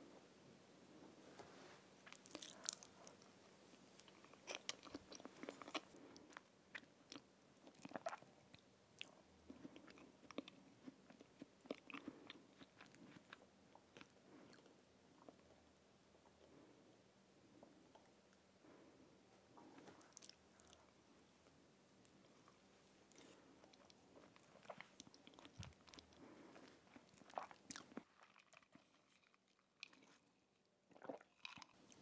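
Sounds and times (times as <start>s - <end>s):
wet chewing: 2.1s - 3.3s, 4.0s - 8.2s.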